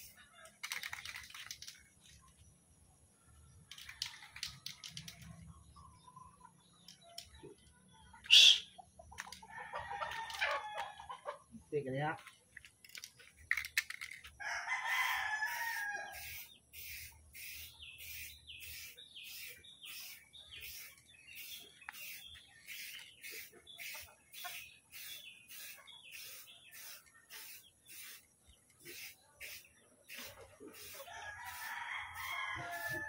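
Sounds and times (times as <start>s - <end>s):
rooster crowing: 14.4s - 16.4s, 30.8s - 33.0s.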